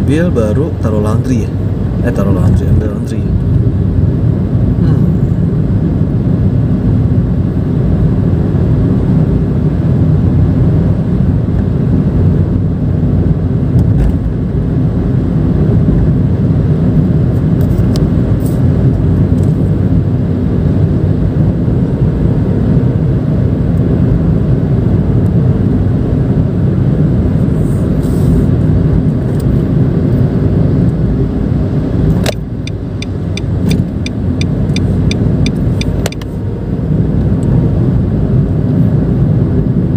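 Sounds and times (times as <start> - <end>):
car engine humming: 0.0 - 39.9
road and tyre noise: 0.0 - 39.9.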